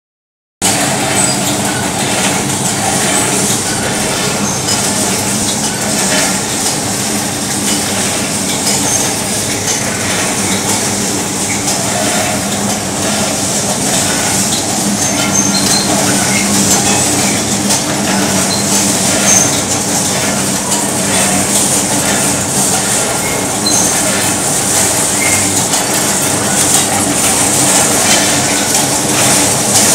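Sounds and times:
wire-making machine drone and clatter: 0:00.6 - 0:29.9
high metal squeaks: 0:00.8 - 0:06.4, 0:14.1 - 0:16.6, 0:23.2 - 0:24.3.

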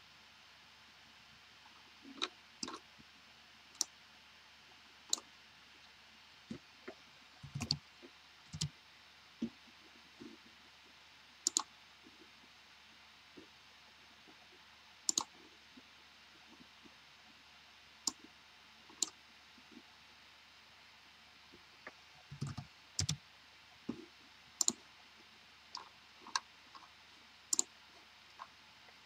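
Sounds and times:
faint room hiss: 0:00.0 - 0:29.0
computer mouse clicking: 0:02.2 - 0:02.8, 0:07.4 - 0:07.8, 0:08.5 - 0:08.7, 0:11.5 - 0:11.7, 0:15.1 - 0:15.4, 0:22.3 - 0:23.2, 0:24.6 - 0:24.8, 0:27.5 - 0:27.7.

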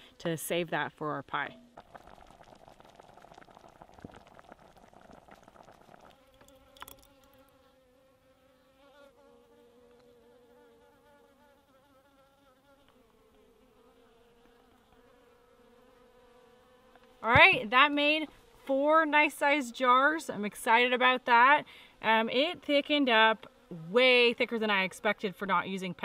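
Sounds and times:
jam bubbling at a boil: 0:01.3 - 0:07.6
bee buzzing: 0:01.5 - 0:26.0.

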